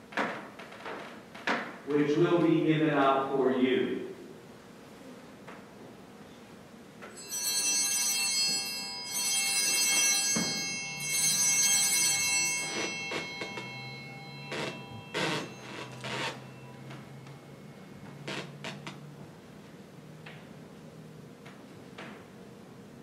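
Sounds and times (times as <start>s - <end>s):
altar bells ringing: 7.1s - 18.3s.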